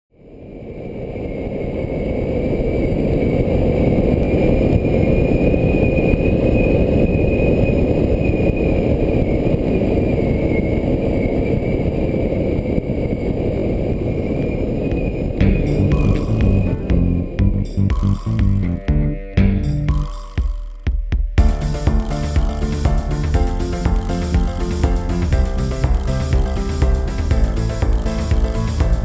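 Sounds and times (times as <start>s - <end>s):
wind rush on microphone: 0.2s - 17.4s.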